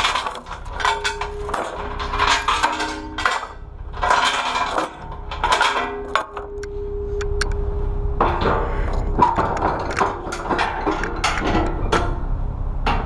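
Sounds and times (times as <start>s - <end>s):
metal ramp clatter: 0.0s - 6.5s, 8.2s - 12.3s
chains clinking and rattling: 0.0s - 6.6s.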